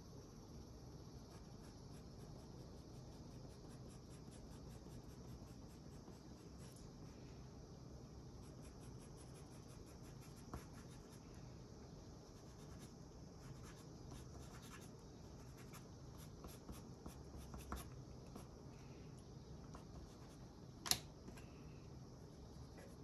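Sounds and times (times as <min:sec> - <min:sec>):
pencil scratching on paper: 0:08.4 - 0:11.2, 0:12.4 - 0:18.5.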